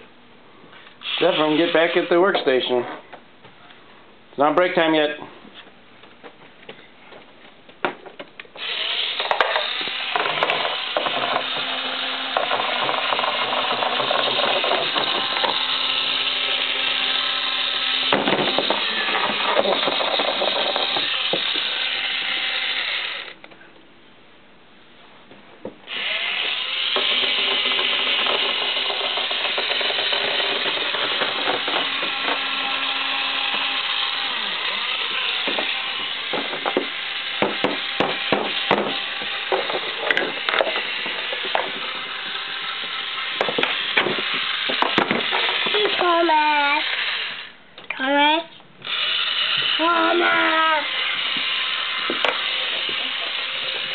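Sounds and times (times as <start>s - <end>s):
toy power drill whirring: 1.0s - 2.1s, 8.6s - 23.4s, 25.9s - 47.6s, 48.8s - 53.9s.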